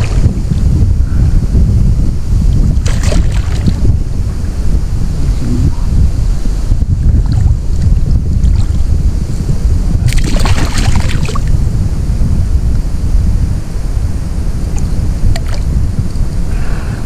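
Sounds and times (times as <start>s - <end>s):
wind on microphone: 0.0s - 17.0s
fish splashing in water: 2.8s - 3.8s, 10.1s - 11.5s.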